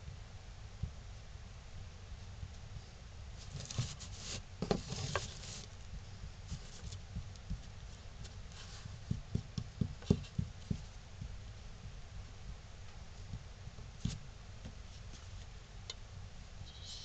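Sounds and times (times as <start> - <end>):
hands rustling and scraping wood: 3.4 - 11.0.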